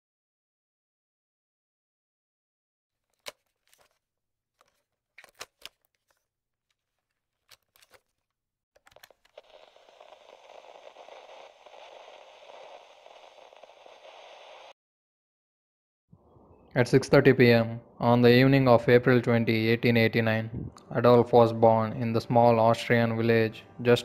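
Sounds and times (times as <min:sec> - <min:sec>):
sharp electric crackles and clicks: 0:09.0 - 0:14.7
steady static hiss: 0:09.4 - 0:14.7.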